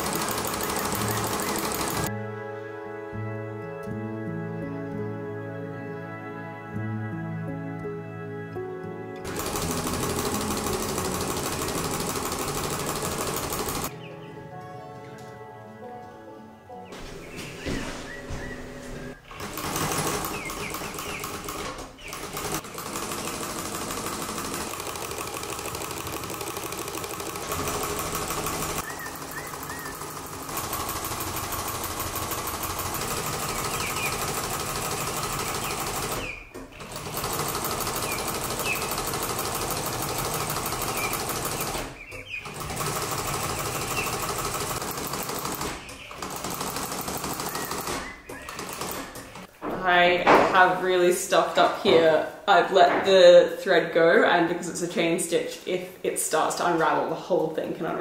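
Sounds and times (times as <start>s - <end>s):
sewing machine stitching: 0.0s - 2.1s, 9.2s - 13.9s, 19.2s - 49.5s.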